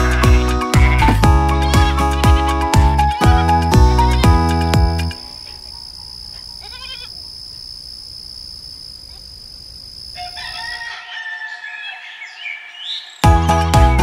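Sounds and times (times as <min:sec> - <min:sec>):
crickets chirring: 0:03.6 - 0:13.1
bird chirps: 0:10.0 - 0:13.4
rooster crowing: 0:10.1 - 0:13.0.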